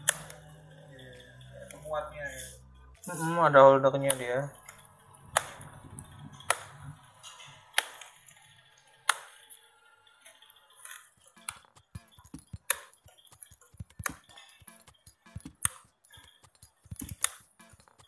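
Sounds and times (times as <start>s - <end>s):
sharp plastic snaps: 0.0s - 0.5s, 4.0s - 8.2s, 9.0s - 9.4s, 10.9s - 18.0s.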